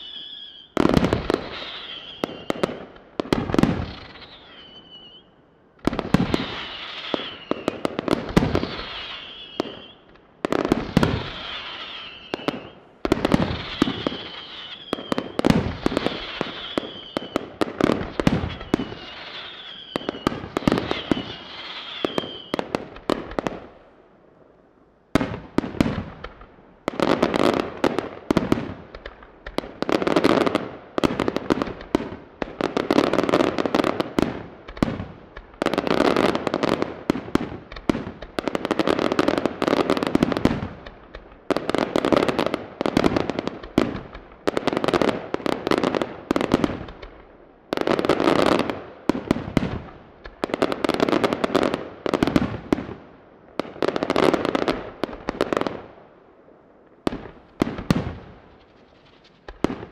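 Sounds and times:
firework whistles: 0:00.0 - 0:02.7, 0:03.6 - 0:05.4, 0:06.0 - 0:22.7
firework bangs and crackling: 0:00.0 - 0:24.0, 0:25.1 - 0:56.2, 0:56.8 - 0:59.9.

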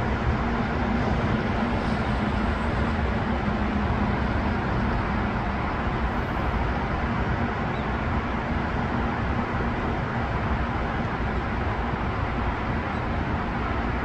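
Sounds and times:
rush of passing cars: 0:00.0 - 0:14.0.

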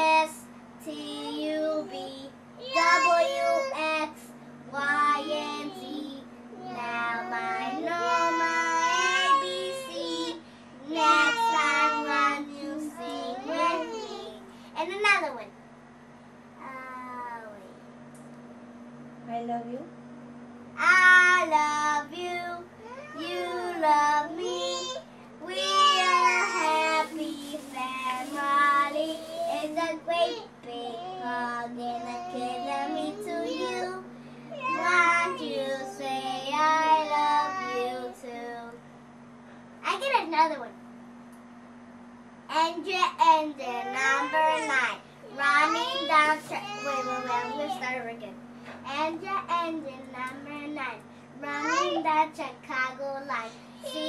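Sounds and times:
girl singing unaccompanied: 0:00.0 - 0:14.5, 0:20.8 - 0:38.8, 0:42.5 - 0:48.0, 0:51.4 - 0:54.0.

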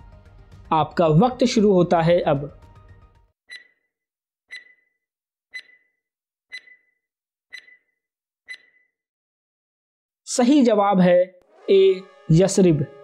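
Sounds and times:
countdown timer ticking: 0:03.5 - 0:03.8, 0:04.5 - 0:04.8, 0:05.5 - 0:05.9, 0:06.5 - 0:06.9, 0:07.5 - 0:07.9, 0:08.5 - 0:08.8.

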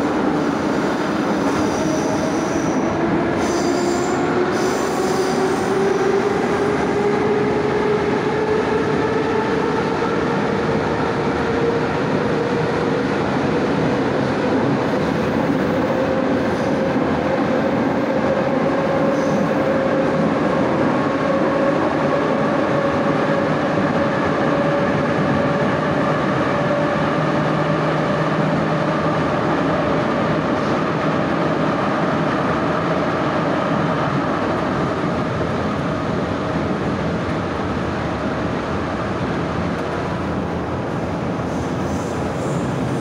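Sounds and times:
train wheels rumbling on track: 0:00.0 - 0:43.0.

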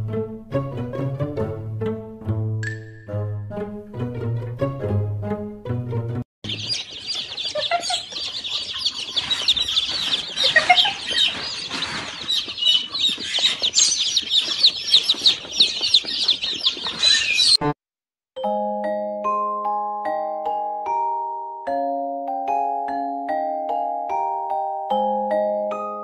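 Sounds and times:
baby chicks peeping: 0:06.4 - 0:17.8.

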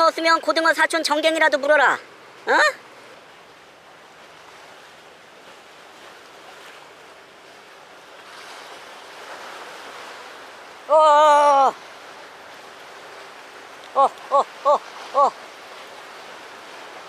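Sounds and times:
waves washing against rocks: 0:00.0 - 0:17.0
wind: 0:00.0 - 0:17.0
man exclaiming: 0:01.4 - 0:02.8, 0:10.9 - 0:11.8, 0:13.9 - 0:15.4.

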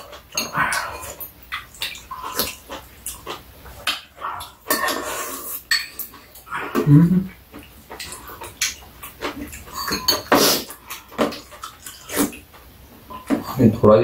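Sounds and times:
wet chewing and slurping: 0:00.0 - 0:13.6.

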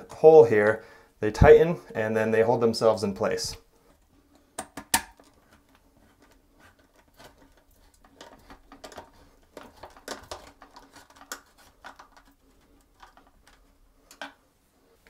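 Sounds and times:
plastic wing nut clicking and scraping: 0:03.9 - 0:14.4.

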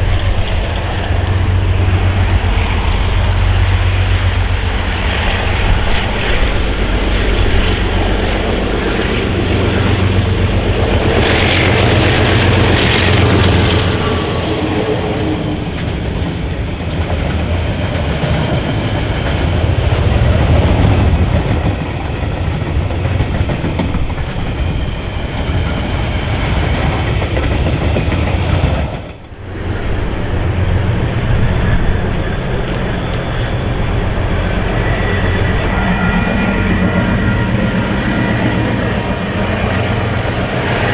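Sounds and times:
diesel locomotives working hard: 0:00.0 - 0:40.9.

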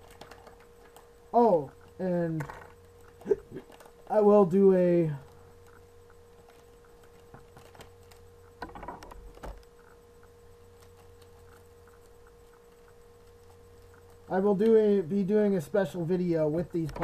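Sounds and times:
plastic packet rustling: 0:00.0 - 0:01.2, 0:03.0 - 0:04.2, 0:06.4 - 0:08.7
steady low hum: 0:00.0 - 0:17.0.

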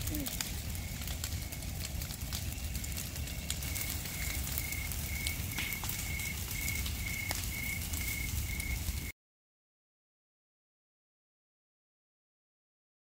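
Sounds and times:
fire crackling and popping: 0:00.0 - 0:09.1.

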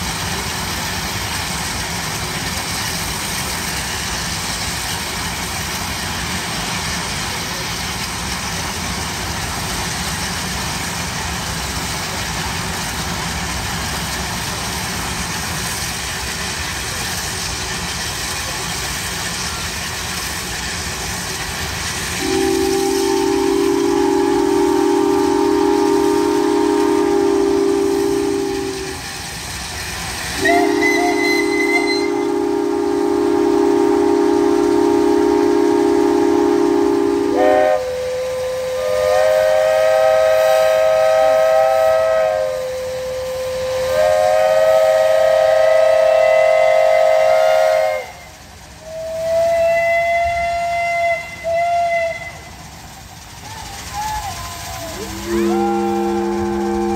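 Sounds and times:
deep chime steam whistle: 0:21.3 - 0:56.9
higher steam whistle: 0:21.9 - 0:29.3, 0:30.0 - 0:52.8, 0:53.4 - 0:56.9.

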